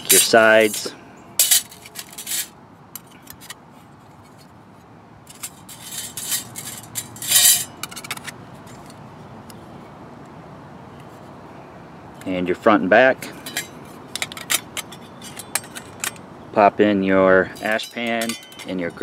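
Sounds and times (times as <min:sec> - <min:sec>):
thin metal panels clinking: 0:00.0 - 0:03.6, 0:05.2 - 0:09.0, 0:13.2 - 0:16.2, 0:17.5 - 0:19.0.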